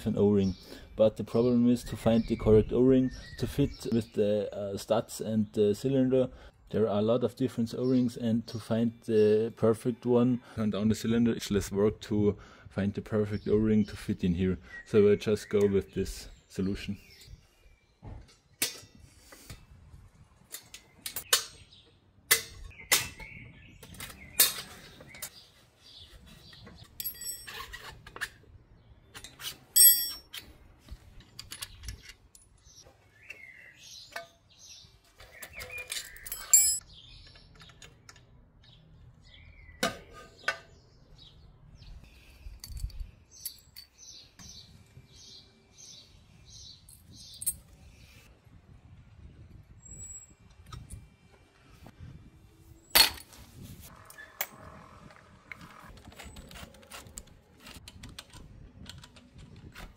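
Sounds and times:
metal engine parts clinking: 26.8 - 28.4, 29.7 - 30.5, 35.2 - 38.8, 42.5 - 44.0, 46.8 - 47.8.

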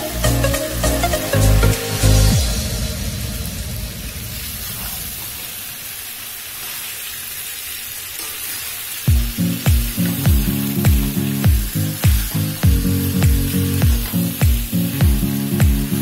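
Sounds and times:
background music with a beat: 0.0 - 4.0, 9.1 - 16.0
food sizzling in a pan: 0.0 - 16.0.

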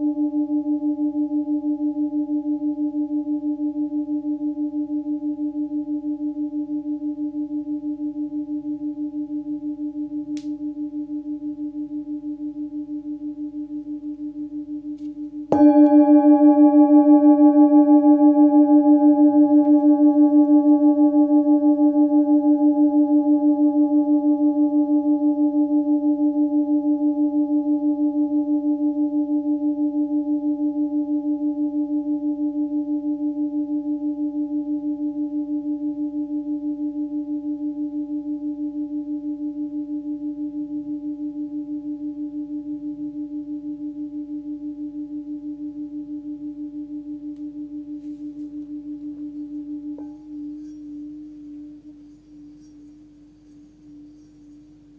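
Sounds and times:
singing bowl ringing: 0.0 - 54.9.

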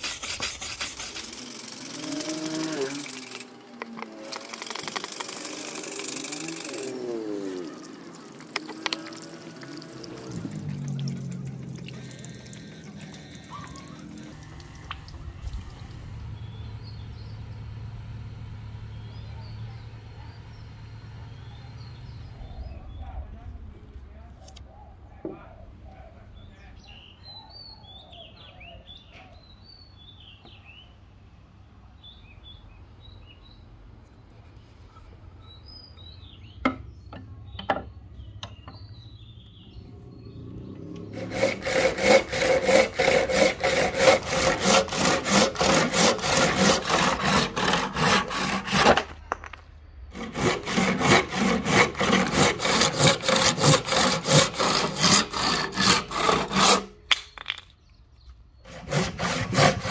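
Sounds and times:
handsaw cutting wood: 0.0 - 14.4, 41.1 - 49.4, 50.1 - 57.0, 58.7 - 59.9.

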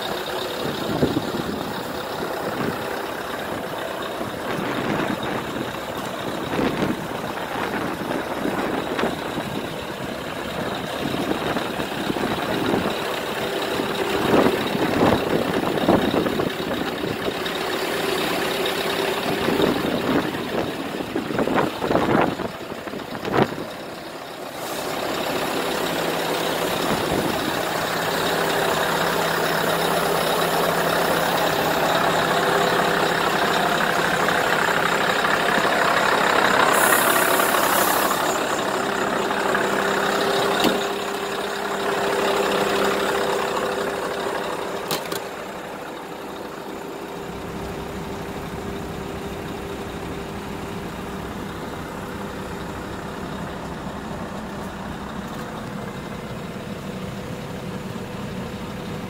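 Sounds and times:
diesel engine idling: 0.0 - 59.0.

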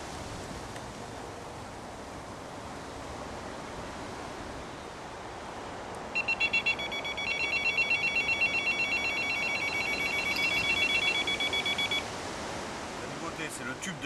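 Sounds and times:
warbling two-tone bite alarm: 6.2 - 12.0.

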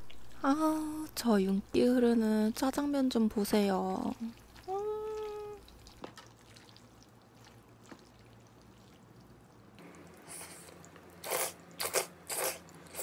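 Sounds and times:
wet noodle slurps: 10.2 - 13.0.

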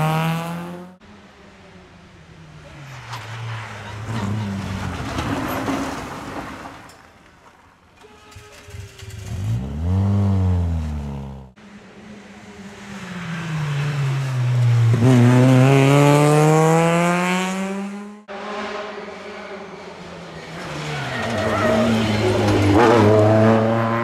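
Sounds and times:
rally car engine revving: 0.0 - 1.0, 8.7 - 24.0.

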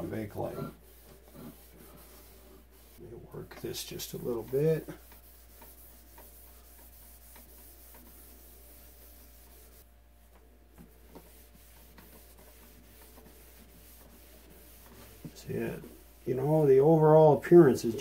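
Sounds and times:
cloth rubbing a cabinet: 0.0 - 18.0.

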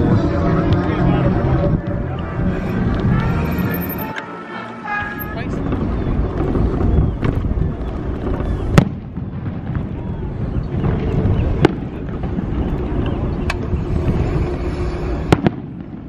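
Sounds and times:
low wind rumble: 0.0 - 16.0
fireworks banging: 5.6 - 16.0.

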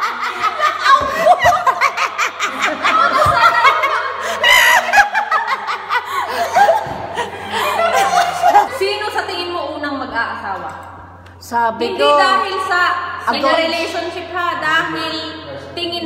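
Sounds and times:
woman laughing loudly: 0.0 - 9.0
people laughing: 0.0 - 9.4.

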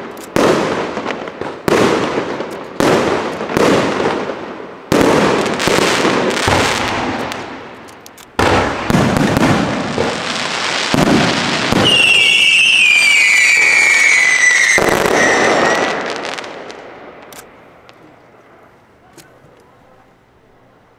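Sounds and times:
fireworks bursting with crackling: 0.0 - 19.8
whistle falling in pitch: 11.8 - 16.0.

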